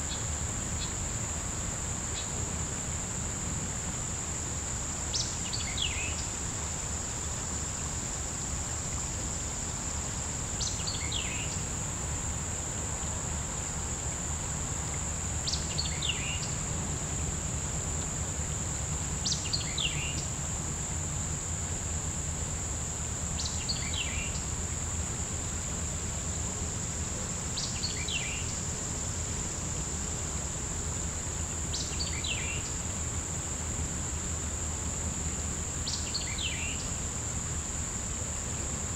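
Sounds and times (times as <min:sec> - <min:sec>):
high insect drone: 0:00.0 - 0:38.9
bird song: 0:05.1 - 0:06.3, 0:10.6 - 0:11.6, 0:15.4 - 0:16.6, 0:19.2 - 0:20.3, 0:23.4 - 0:24.4, 0:27.6 - 0:28.6, 0:31.7 - 0:32.8, 0:35.8 - 0:36.9.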